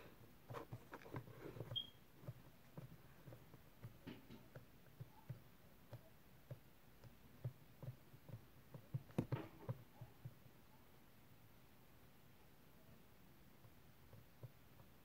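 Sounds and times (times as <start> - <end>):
fingertips tapping sticky slime: 0.4 - 10.5, 13.5 - 15.0.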